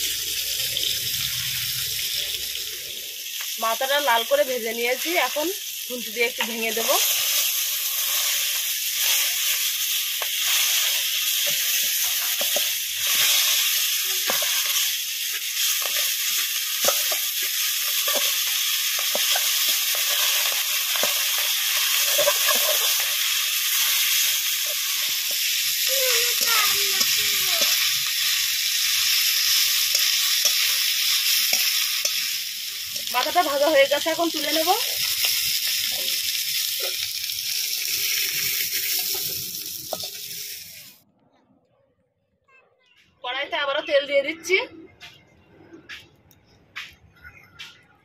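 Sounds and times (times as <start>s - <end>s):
fish frying in hot oil: 0.0s - 41.0s
metal spatula scraping pan: 19.0s - 23.1s.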